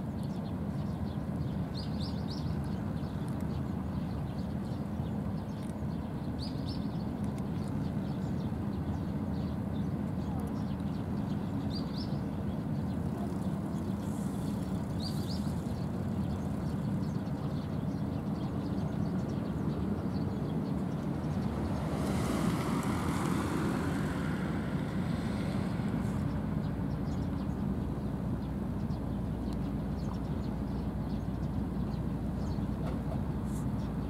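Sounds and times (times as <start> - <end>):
distant motor traffic rumble: 0.4 - 34.0
vehicle passing: 20.7 - 27.1.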